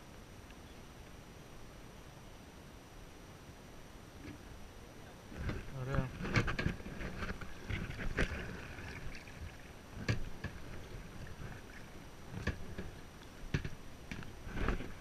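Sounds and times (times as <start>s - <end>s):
water splashing off paddle: 6.2s - 13.8s.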